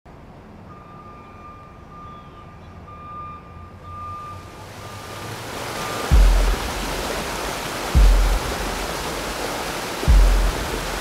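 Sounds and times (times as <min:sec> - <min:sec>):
rushing noise: 0:04.6 - 0:11.0.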